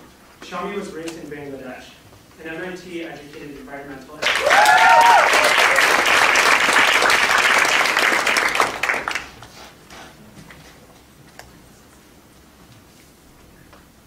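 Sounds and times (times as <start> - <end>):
audience applauding: 4.2 - 9.5.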